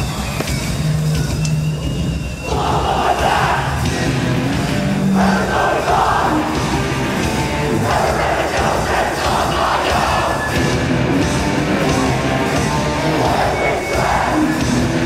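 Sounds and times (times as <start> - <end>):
distorted guitars: 0.0 - 15.0
drums: 0.0 - 15.0
shouted vocals: 2.4 - 10.7, 11.5 - 15.0.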